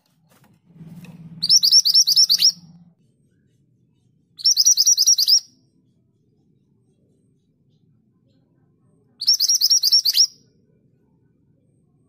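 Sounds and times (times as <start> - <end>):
bird singing rapid trills: 1.4 - 2.8, 4.4 - 5.6, 9.2 - 10.5.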